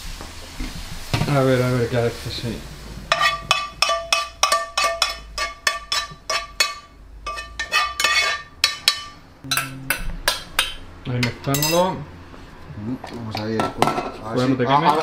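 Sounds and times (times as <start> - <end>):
saucepan clinking on metal: 3.1 - 11.9.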